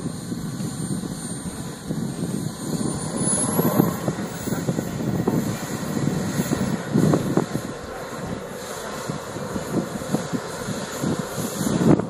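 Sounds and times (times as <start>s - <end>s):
model jet turbine whine: 0.0s - 12.0s
rough low engine rumble: 0.0s - 12.0s.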